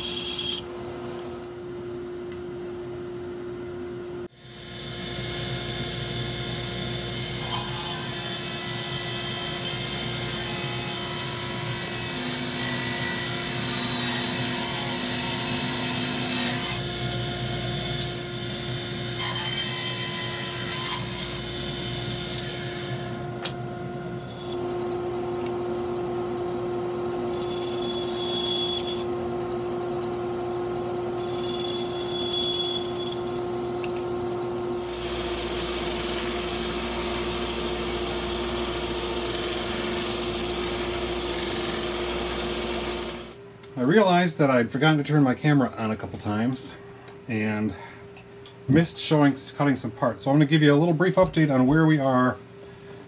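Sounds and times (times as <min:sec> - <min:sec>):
table saw cutting wood: 0:00.0 - 0:00.7, 0:04.3 - 0:33.6, 0:34.6 - 0:43.4.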